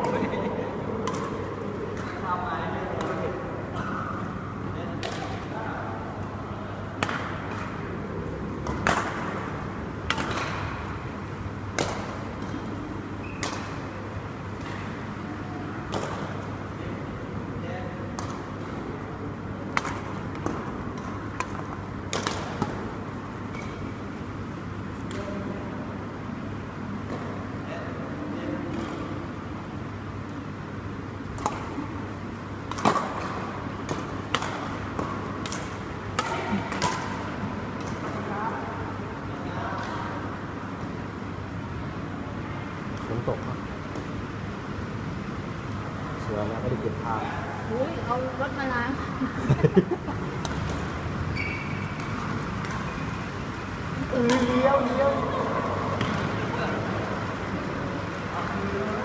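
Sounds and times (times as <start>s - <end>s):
rackets hitting shuttlecock: 0.9s - 2.3s, 2.9s - 4.2s, 4.9s - 5.5s, 6.9s - 11.1s, 11.7s - 15.2s, 15.8s - 16.5s, 18.1s - 18.8s, 19.6s - 24.2s, 28.6s - 29.3s, 31.2s - 38.3s, 39.8s - 40.7s, 50.3s - 53.4s, 54.1s - 56.4s.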